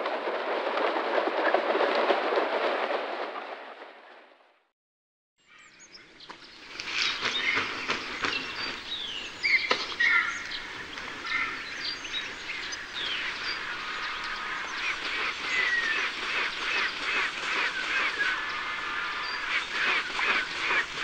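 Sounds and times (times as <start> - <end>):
vultures calling: 6.7 - 21.0.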